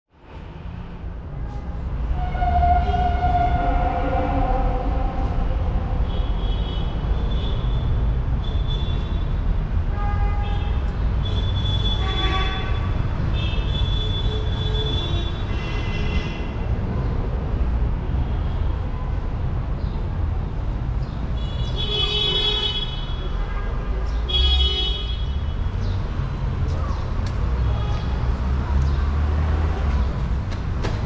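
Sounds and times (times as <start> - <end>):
tram rumbling on rails: 0.2 - 7.5
high-pitched wheel squeal: 2.1 - 5.8.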